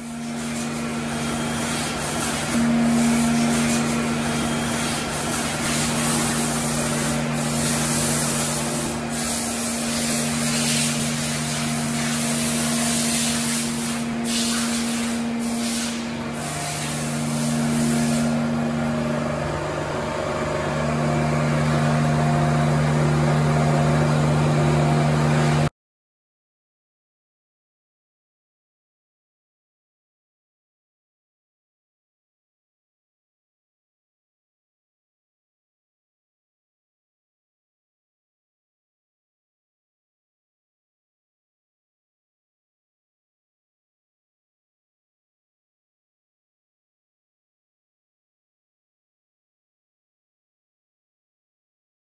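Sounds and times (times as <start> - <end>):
loud machinery hiss: 0.0 - 22.6
motor hum: 0.0 - 25.7.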